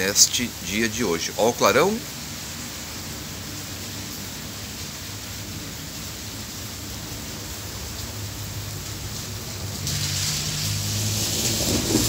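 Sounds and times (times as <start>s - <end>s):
rain falling on wet street: 0.0s - 12.0s.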